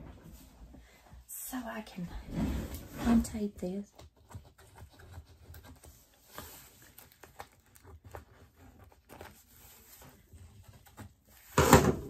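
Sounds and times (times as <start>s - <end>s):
hands clicking and rustling at package: 4.0s - 9.6s.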